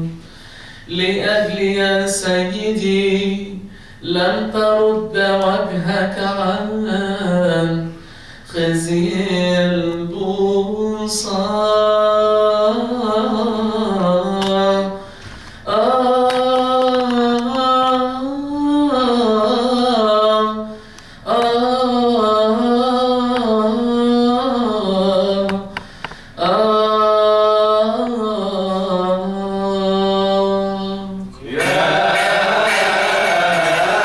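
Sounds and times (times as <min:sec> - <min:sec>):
men chanting a hymn: 0:31.4 - 0:34.0.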